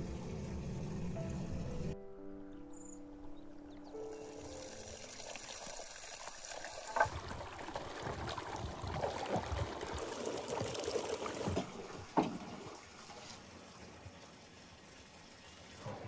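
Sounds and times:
water sloshing and splashing: 0:04.3 - 0:16.0.

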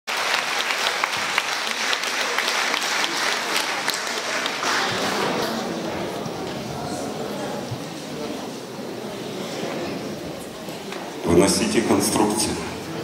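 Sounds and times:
audience applauding: 0:00.1 - 0:05.8.

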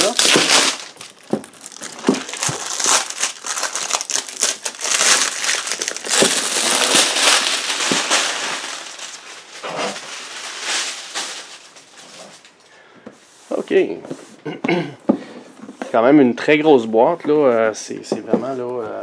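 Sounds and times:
plastic wrapping crinkling: 0:00.0 - 0:12.7.

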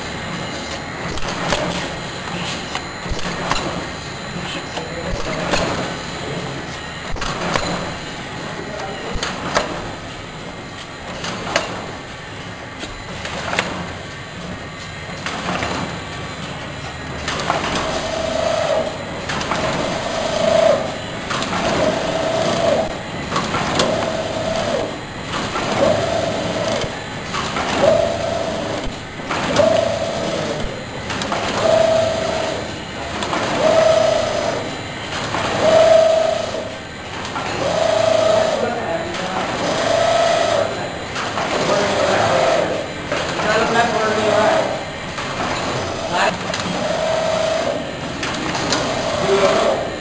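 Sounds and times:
packing machine knocking: 0:03.0 - 0:03.8.

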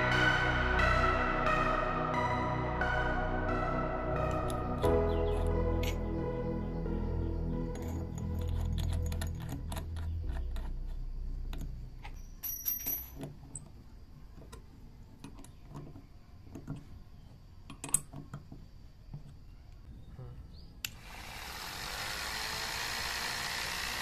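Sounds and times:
chuck key ratcheting: 0:07.7 - 0:13.6
high metallic ring: 0:12.0 - 0:13.2.

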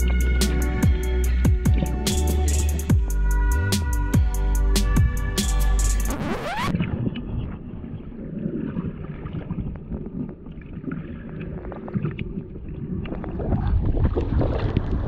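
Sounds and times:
muffled underwater water rumble: 0:06.7 - 0:15.0
small underwater clicks and crackles: 0:06.8 - 0:15.0.

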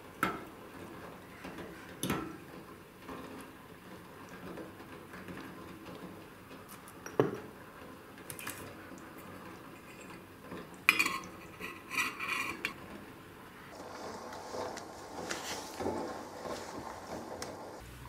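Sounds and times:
pot lid clinking on rim: 0:10.9 - 0:12.8.

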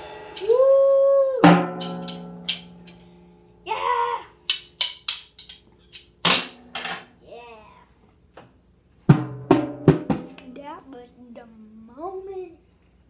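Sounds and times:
drum kit hits: 0:01.4 - 0:02.9, 0:09.1 - 0:10.4
child shouting: 0:03.6 - 0:04.4, 0:07.2 - 0:07.9.

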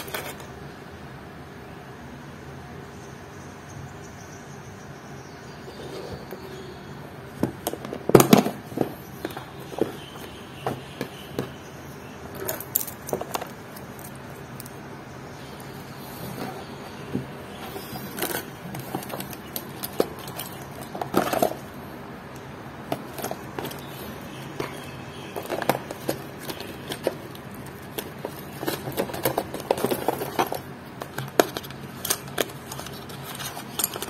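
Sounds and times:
small tools clicking and knocking: 0:07.4 - 0:11.6, 0:12.3 - 0:14.8, 0:16.3 - 0:34.0
rustling: 0:22.8 - 0:34.0.

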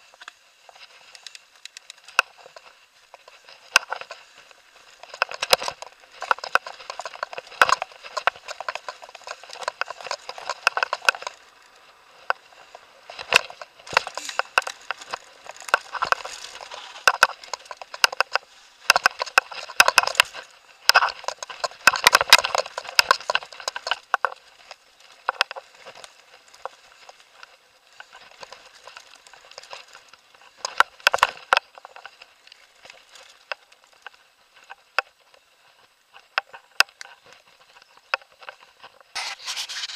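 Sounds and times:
bike rattling over dirt trail: 0:00.0 - 0:39.9.

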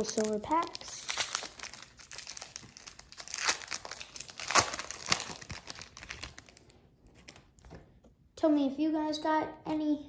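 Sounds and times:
foil pack crinkling: 0:00.0 - 0:07.6.

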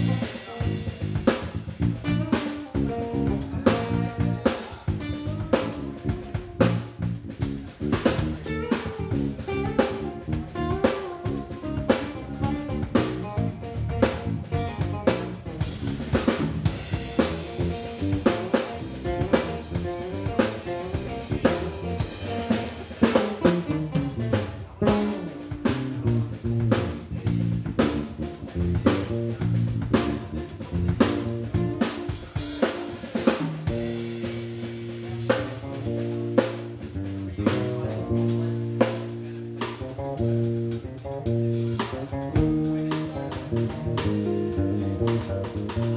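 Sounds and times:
cymbals: 0:00.0 - 0:13.5
electric guitar: 0:00.0 - 0:45.9
live band playing: 0:00.0 - 0:45.9.

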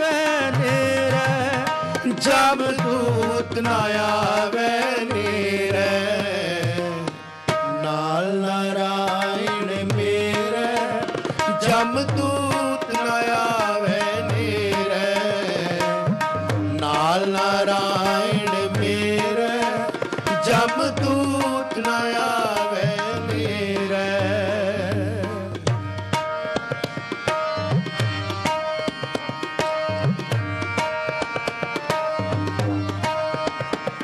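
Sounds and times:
person singing ornamented melody: 0:00.0 - 0:16.0
harmonium notes: 0:00.0 - 0:34.0
tabla rhythm: 0:00.0 - 0:34.0.

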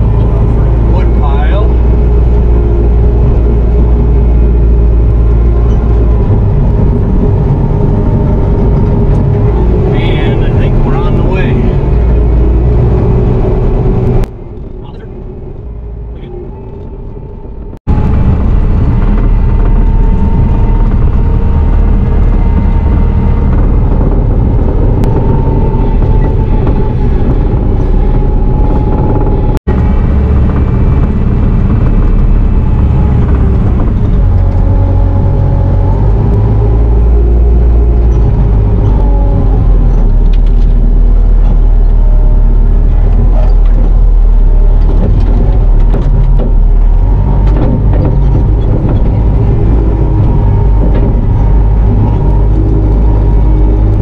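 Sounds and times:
diesel engine rumble: 0:00.0 - 0:54.0.

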